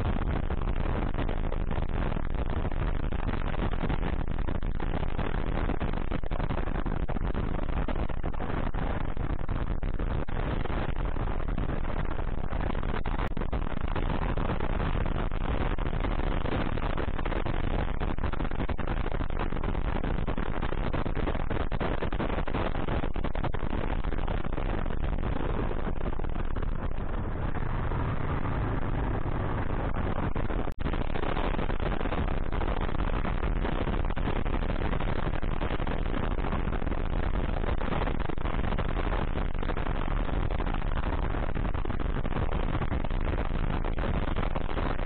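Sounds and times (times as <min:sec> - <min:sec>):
wind noise: 0:00.0 - 0:45.0
road noise: 0:23.7 - 0:34.2
motorcycle engine running: 0:24.2 - 0:30.8.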